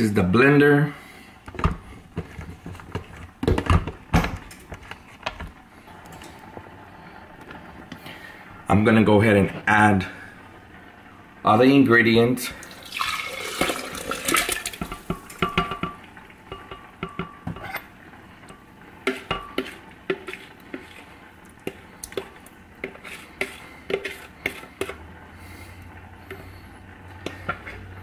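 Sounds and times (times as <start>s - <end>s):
low steady hum: 0.0s - 28.0s
spoon scraping plastic bowl: 19.1s - 25.0s.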